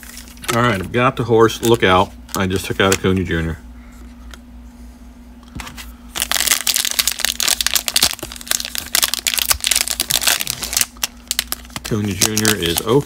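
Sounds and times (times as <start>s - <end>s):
plastic wrapper crinkling: 6.1s - 13.0s.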